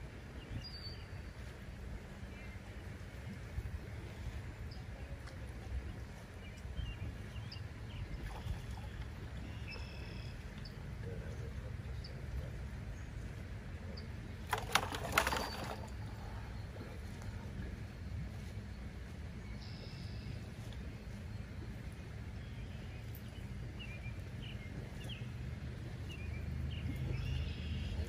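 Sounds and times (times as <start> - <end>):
low outdoor rumble: 0.0 - 28.0
small birds chirping: 0.4 - 28.0
hands splashing in water bucket: 14.5 - 15.9.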